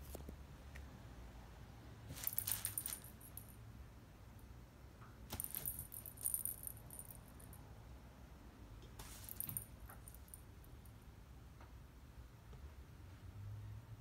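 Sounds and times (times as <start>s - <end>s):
cat toy jingling rattle: 2.1s - 3.5s, 5.3s - 7.6s, 9.0s - 10.4s.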